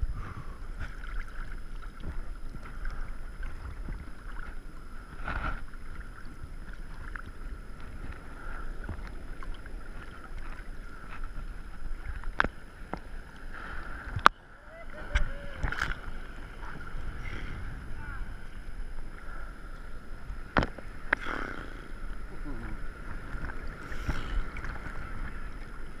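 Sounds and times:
water sloshing and lapping: 0.0s - 26.0s
wind on microphone: 0.0s - 26.0s
water splash: 20.5s - 25.7s.

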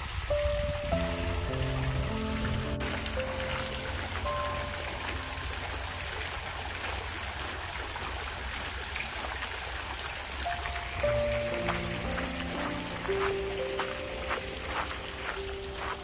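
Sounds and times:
running water babbling: 0.0s - 16.0s
faint background music: 0.3s - 7.3s, 10.4s - 16.0s.

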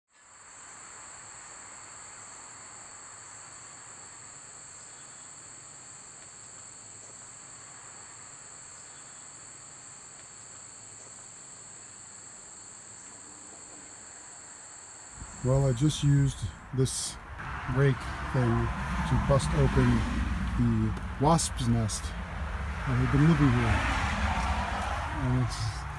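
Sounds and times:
insects trilling: 0.2s - 25.9s.

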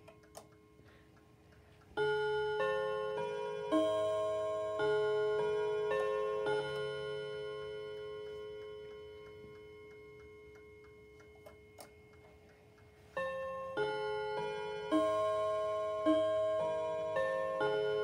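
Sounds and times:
clock hand clicks: 0.0s - 2.1s, 8.6s - 13.3s
clock ticking: 0.0s - 18.0s
clock chime rods ringing: 1.9s - 18.0s.

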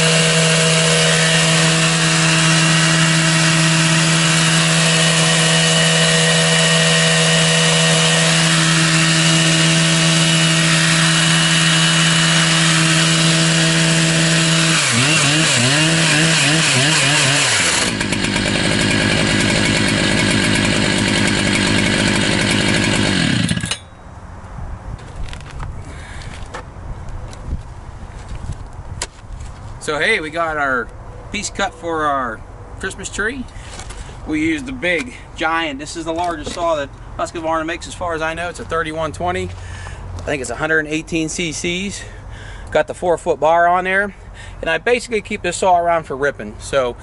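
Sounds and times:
chainsaw cutting wood: 0.0s - 23.9s.

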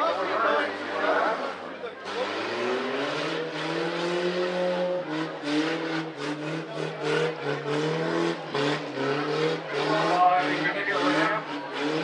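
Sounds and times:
truck engine revving hard: 0.0s - 12.0s.

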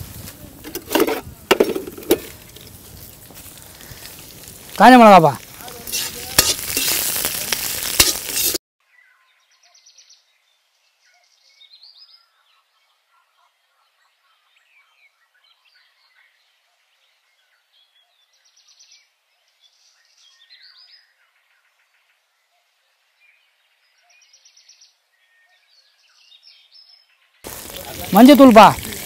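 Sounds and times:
spices sizzling in hot oil: 0.0s - 8.6s, 27.4s - 29.0s
ladle knocking against pan: 0.7s - 2.4s.

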